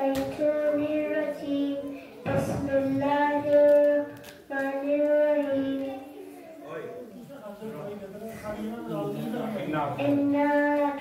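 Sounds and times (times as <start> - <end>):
child chanting melodically: 0.0 - 6.6, 10.0 - 11.0.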